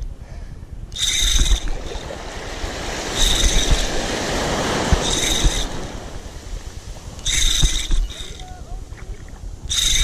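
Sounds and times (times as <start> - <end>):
fishing reel bearing squealing: 0.9 - 2.2, 3.1 - 4.2, 4.9 - 6.3, 7.2 - 8.7, 9.7 - 10.0
surf washing: 1.0 - 10.0.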